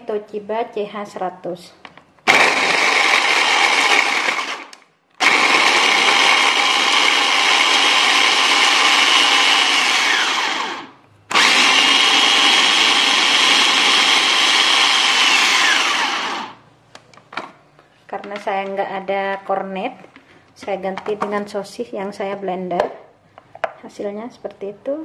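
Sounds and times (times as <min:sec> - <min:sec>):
electric food chopper whining: 0:02.2 - 0:16.6.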